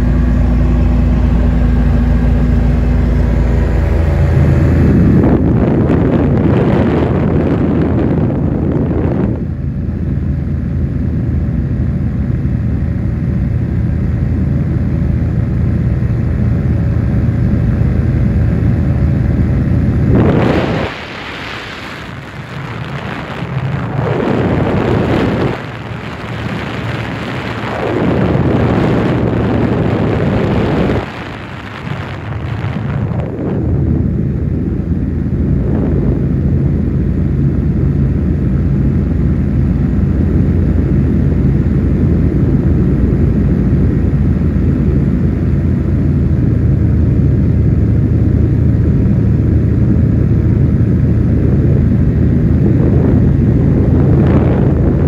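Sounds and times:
aircraft low drone: 0:00.0 - 0:55.0
loud rushing bursts: 0:19.8 - 0:37.4.

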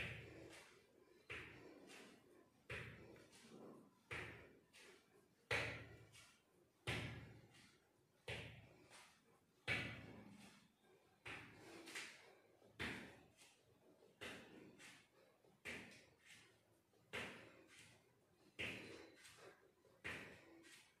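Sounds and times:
light foot taps: 0:11.2 - 0:21.0.

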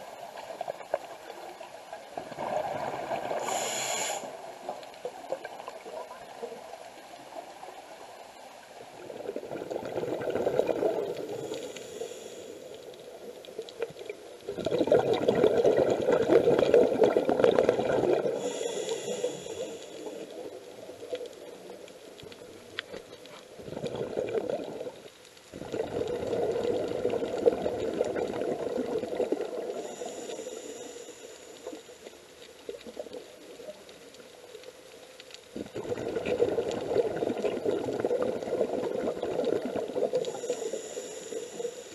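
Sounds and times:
bubbling exhaled air underwater: 0:00.0 - 0:06.6, 0:08.9 - 0:12.5, 0:13.7 - 0:21.8, 0:22.4 - 0:31.0, 0:35.5 - 0:41.9
regulator inhale hiss: 0:03.2 - 0:04.4, 0:11.0 - 0:13.2, 0:18.2 - 0:20.5, 0:29.6 - 0:32.4, 0:40.0 - 0:41.9.

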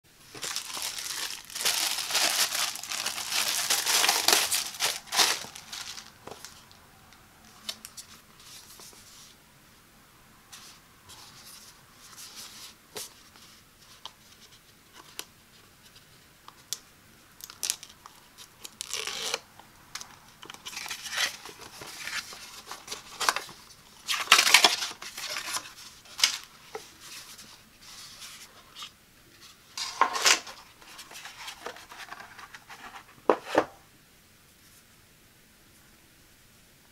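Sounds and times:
cardboard box handling: 0:00.3 - 0:06.5
plastic wrap crinkling and tearing: 0:00.3 - 0:06.6, 0:17.4 - 0:18.0, 0:18.6 - 0:19.4, 0:20.6 - 0:26.5.

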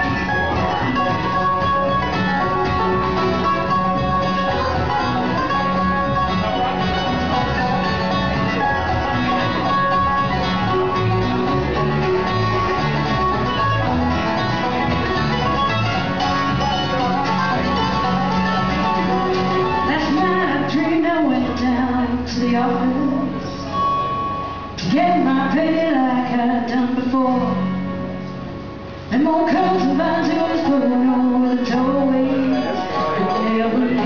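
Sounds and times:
bluegrass band playing: 0:00.0 - 0:34.0.

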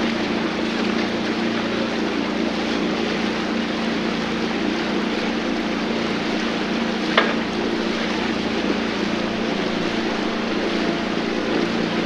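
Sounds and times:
boat motor humming: 0:00.0 - 0:12.0
rushing noise: 0:07.6 - 0:12.0.

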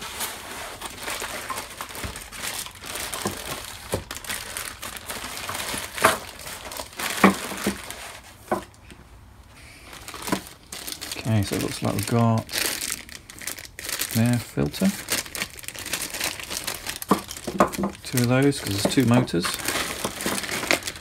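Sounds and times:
plastic bags rustling: 0:00.0 - 0:08.9, 0:09.5 - 0:21.0.

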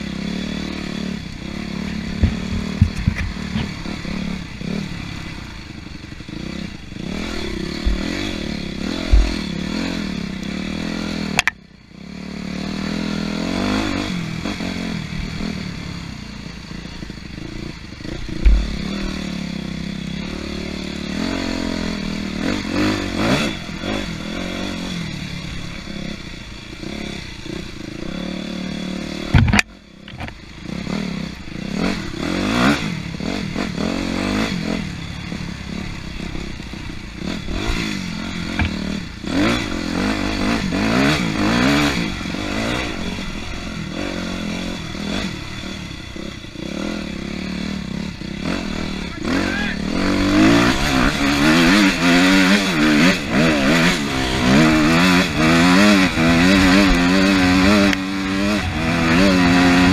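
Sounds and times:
dirt bike engine revving: 0:00.0 - 0:59.9
bike rattling and clattering: 0:01.6 - 0:11.6, 0:17.1 - 0:20.0, 0:29.1 - 0:30.9, 0:35.4 - 0:48.9.

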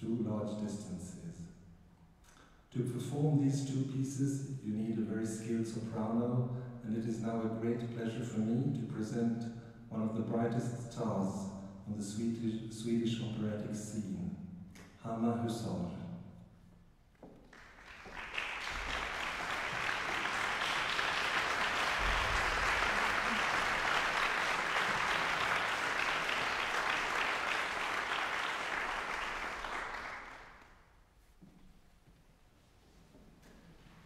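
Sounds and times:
audience applauding: 0:17.5 - 0:30.8.

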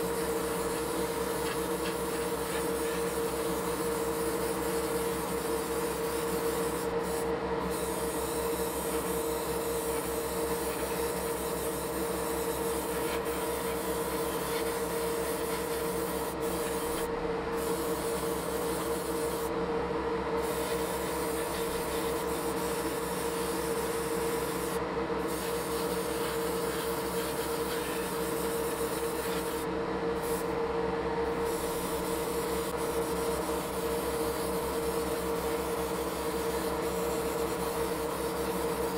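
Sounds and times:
equipment motor hum: 0:00.0 - 0:25.2.

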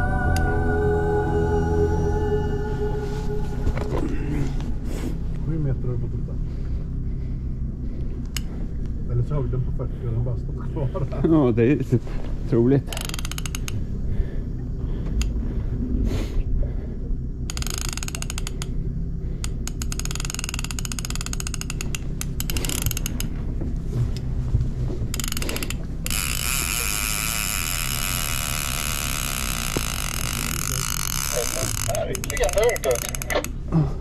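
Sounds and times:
fishing reel ratcheting: 0:12.9 - 0:13.9, 0:17.5 - 0:18.8, 0:19.4 - 0:23.4, 0:25.1 - 0:33.6.

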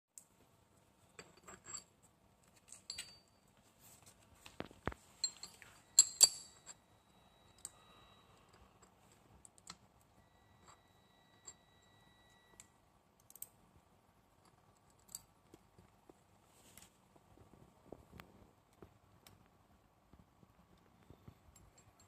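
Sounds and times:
small metal parts clicking: 0:05.2 - 0:06.8, 0:13.2 - 0:13.6, 0:14.4 - 0:15.8
metallic tings: 0:05.2 - 0:08.0.

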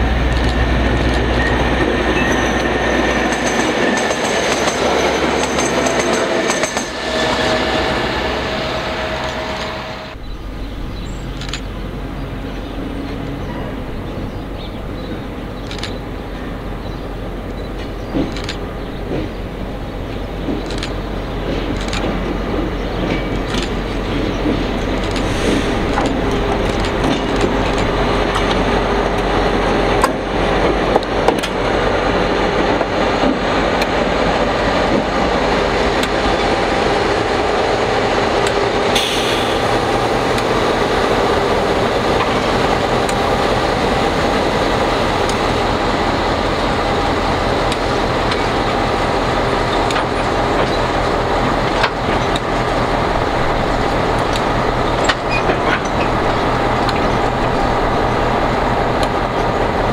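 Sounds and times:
diesel engine and wheel rumble: 0:00.0 - 0:04.0, 0:06.4 - 0:59.9
sharp clicks: 0:11.3 - 0:11.7, 0:15.6 - 0:16.0, 0:18.2 - 0:19.3, 0:20.5 - 0:21.0.

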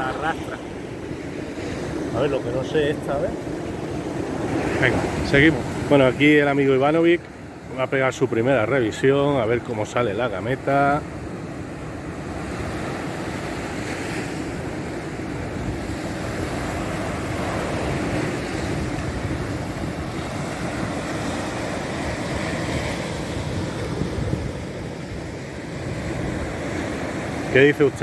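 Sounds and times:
surf washing onto beach: 0:00.0 - 0:28.0
wind buffeting microphone: 0:14.8 - 0:28.0.

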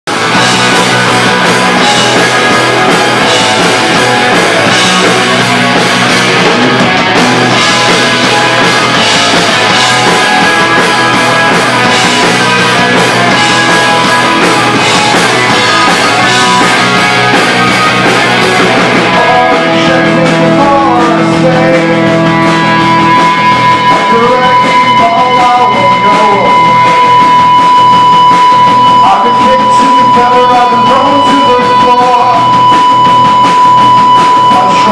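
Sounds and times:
bass guitar: 0:00.0 - 0:34.9
distorted electric guitars: 0:00.0 - 0:34.9
drums playing loud: 0:00.1 - 0:34.9
person singing: 0:18.7 - 0:22.4, 0:23.8 - 0:27.2, 0:29.0 - 0:32.8, 0:34.4 - 0:34.9.

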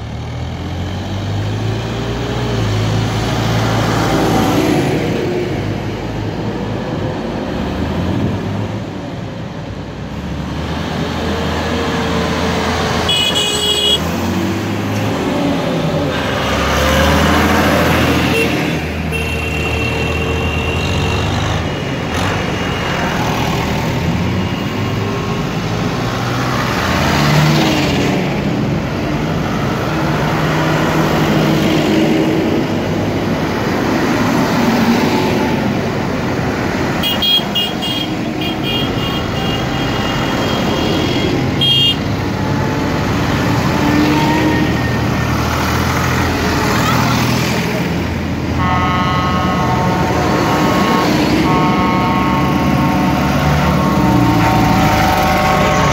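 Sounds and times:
diesel tractors driving past: 0:00.0 - 0:55.9
horn toots: 0:13.0 - 0:14.1, 0:37.0 - 0:42.1, 0:48.5 - 0:55.9.

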